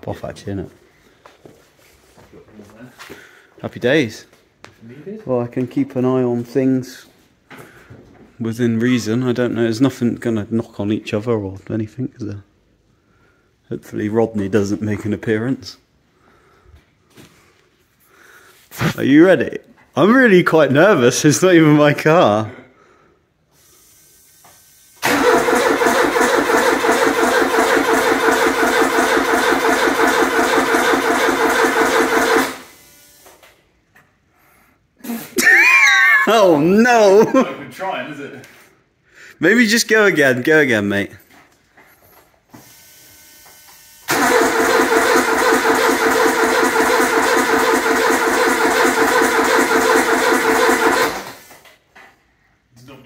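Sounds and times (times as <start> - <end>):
starter motor cranking engine: 25.0 - 32.8, 44.1 - 51.6.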